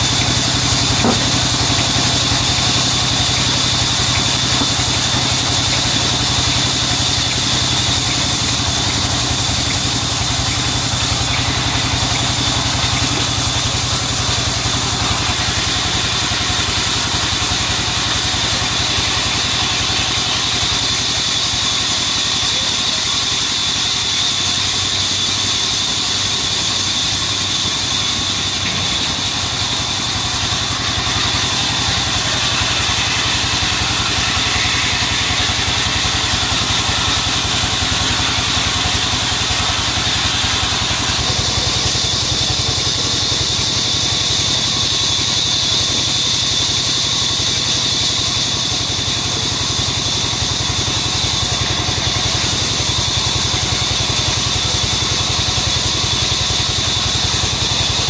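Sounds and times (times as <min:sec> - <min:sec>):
engine drone: 0:00.0 - 0:58.0
high-pitched band saw blade: 0:00.0 - 0:58.0.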